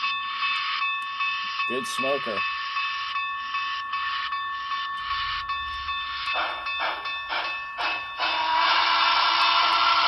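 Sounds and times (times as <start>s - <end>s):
model steam locomotive sounds: 0.0s - 10.0s
steady high tone: 0.0s - 10.0s
steam chuffs: 6.3s - 10.0s.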